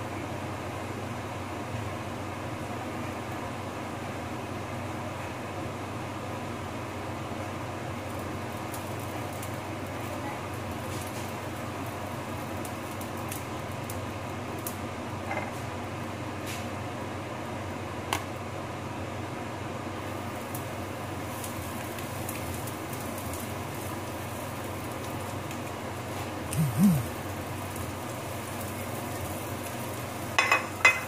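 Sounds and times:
low hum and hiss: 0.0 - 31.0
spatula tapping frying pan: 30.4 - 31.0.

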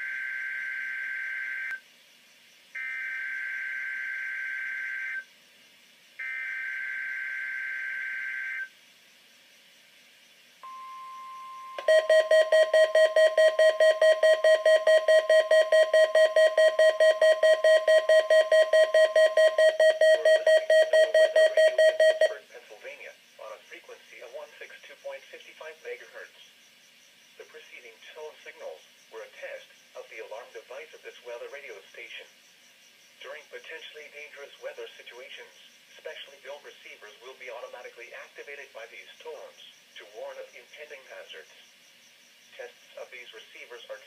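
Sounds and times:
radio alarm beeping rapidly: 10.6 - 22.4
steady warning tone: 10.6 - 22.6
screechy digital header bursts: 11.4 - 22.4.

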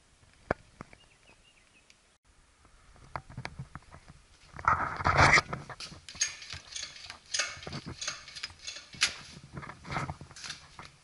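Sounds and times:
machine clicks rattles and scrapes: 4.6 - 11.0.

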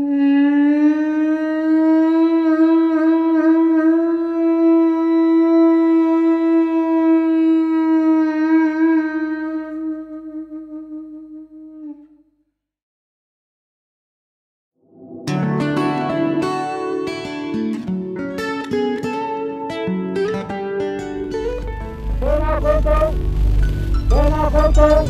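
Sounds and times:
long horn note: 21.3 - 25.0.

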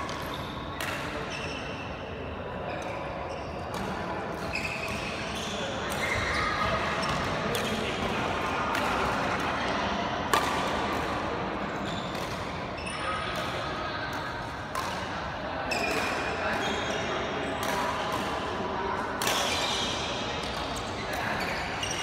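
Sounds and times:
rackets striking shuttlecock: 10.3 - 11.4, 12.1 - 12.7, 13.3 - 15.2, 17.6 - 22.0.

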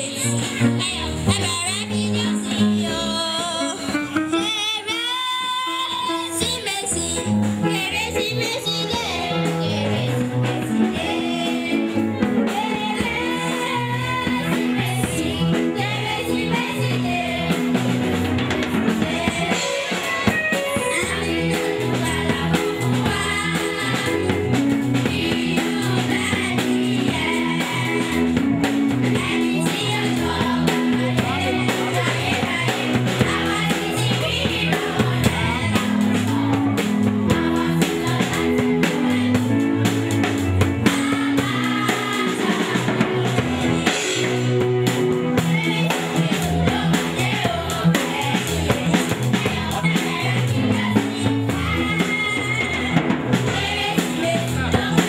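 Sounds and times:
girl singing into microphone: 0.0 - 10.2
backing music with drums and bass: 0.0 - 55.0.

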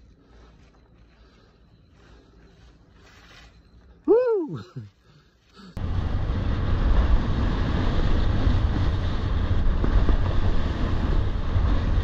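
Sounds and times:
wind buffeting microphone: 5.8 - 12.0.

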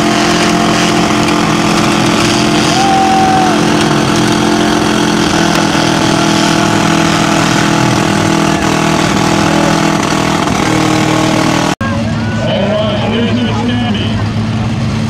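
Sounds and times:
car engines running loudly: 0.0 - 15.0.

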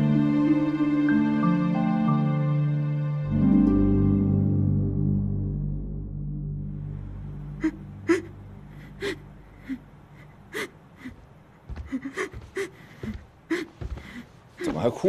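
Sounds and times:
soft background music: 0.0 - 11.1.

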